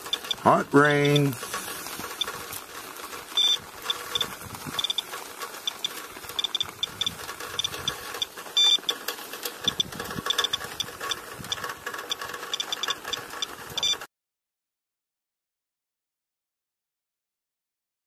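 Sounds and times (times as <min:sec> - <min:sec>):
dosimeter short high beeps: 0:03.4 - 0:03.6, 0:08.6 - 0:08.8, 0:13.8 - 0:14.0
longer louder dosimeter beep: 0:03.4 - 0:05.0, 0:06.4 - 0:07.8, 0:08.6 - 0:08.8, 0:13.8 - 0:14.0.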